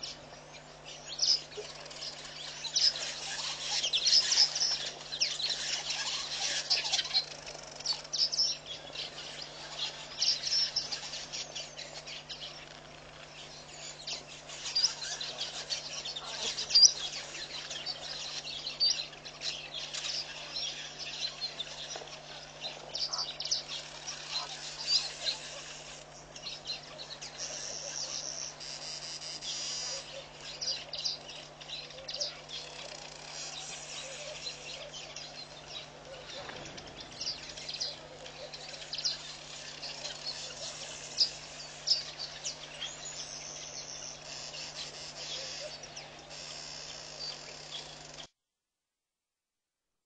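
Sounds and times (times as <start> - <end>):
steady low hum: 0.0 - 48.3
high bird chirps: 13.2 - 48.3.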